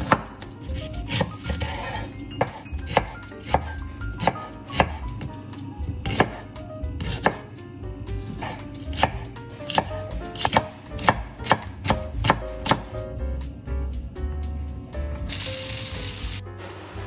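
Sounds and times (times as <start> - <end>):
knife chopping on wooden board: 0.0 - 5.4, 6.0 - 6.4, 7.0 - 7.5, 8.2 - 12.9.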